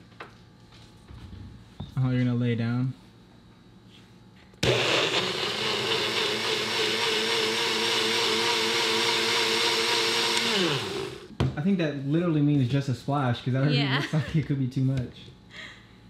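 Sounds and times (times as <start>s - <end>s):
blender running: 4.6s - 11.3s.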